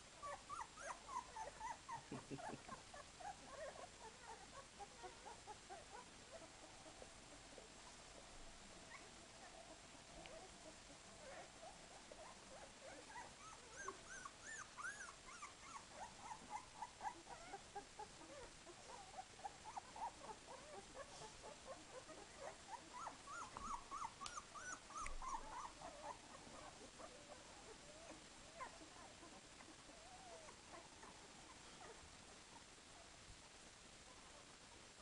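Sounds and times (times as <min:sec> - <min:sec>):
puppies squeaking and whimpering: 0:21.9 - 0:27.3.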